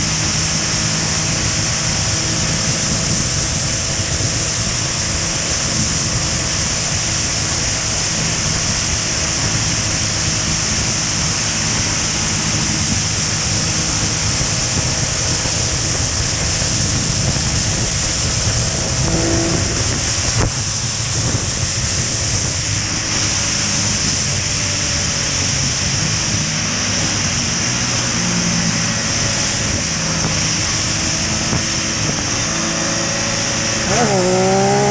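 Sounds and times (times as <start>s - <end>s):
motorcycle engine drone: 0.0s - 34.9s
wind and road rush: 0.0s - 34.9s.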